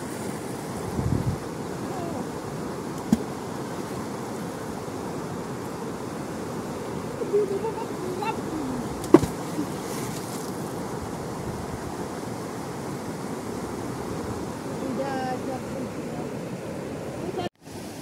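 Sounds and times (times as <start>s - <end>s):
floodwater rushing: 0.0s - 18.0s
faint voices: 1.8s - 2.3s, 7.2s - 9.8s
sharp splash: 9.0s - 10.6s.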